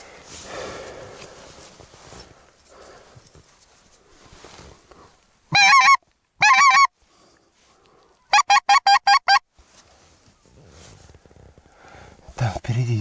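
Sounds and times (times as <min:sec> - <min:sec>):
goose call honks: 0:05.5 - 0:06.9, 0:08.3 - 0:09.4.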